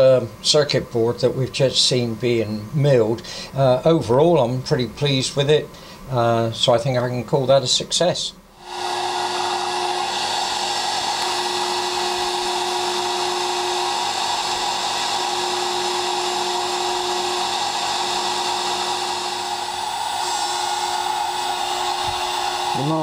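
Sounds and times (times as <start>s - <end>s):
milling spindle whine and hiss: 8.6s - 23.0s.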